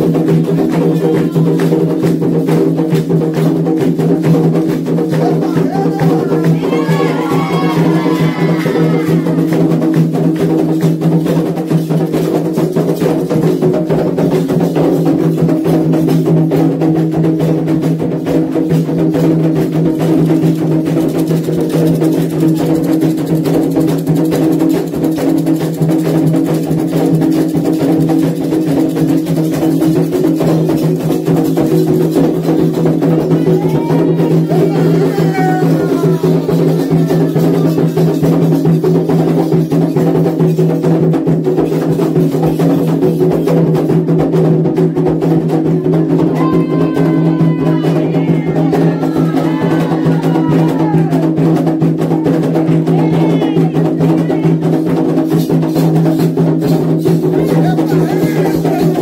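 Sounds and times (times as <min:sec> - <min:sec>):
hand drums playing fast: 0:00.0 - 0:59.0
sharp percussion strokes: 0:00.0 - 0:59.0
person singing: 0:00.6 - 0:01.8, 0:05.1 - 0:09.8, 0:33.2 - 0:38.3, 0:45.8 - 0:51.2, 0:52.2 - 0:54.7, 0:57.3 - 0:59.0.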